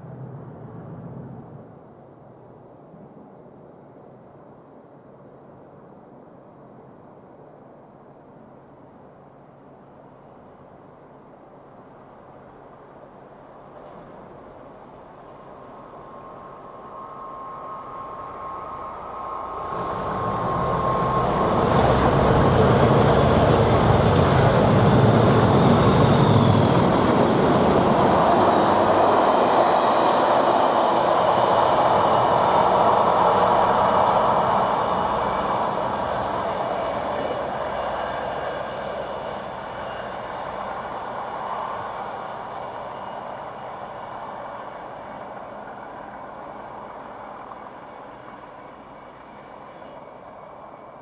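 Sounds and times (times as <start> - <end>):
rumble of train coaches: 0.0 - 51.0
diesel locomotive engine working hard: 13.8 - 51.0.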